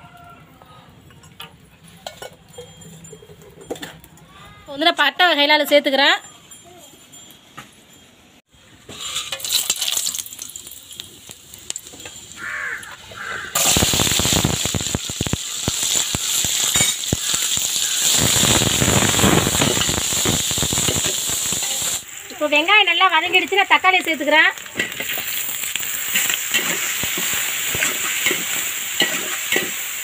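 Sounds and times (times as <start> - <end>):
spices clinking into pot: 1.0 - 4.2, 8.9 - 13.0, 13.6 - 22.0, 24.6 - 30.0
oil sizzling in a pot: 8.6 - 30.0
metal ladle scraping pot: 8.8 - 10.2.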